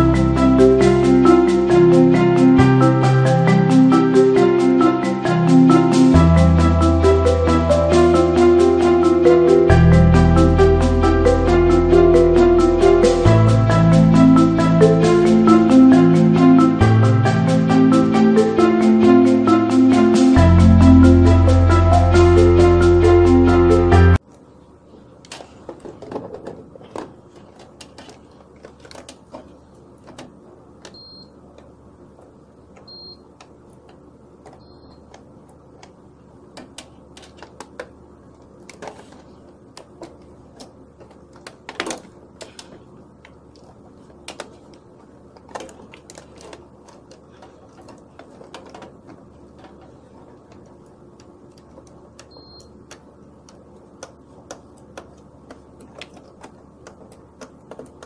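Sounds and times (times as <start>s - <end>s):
multimeter beeps: 30.9s - 31.4s, 32.9s - 33.3s, 34.6s - 35.1s, 52.2s - 52.8s.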